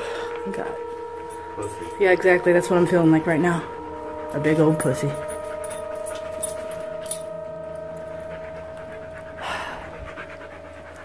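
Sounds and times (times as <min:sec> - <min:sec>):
person breathing heavily: 0:00.0 - 0:00.4, 0:09.3 - 0:10.8
high-pitched electrical whine: 0:00.0 - 0:11.0.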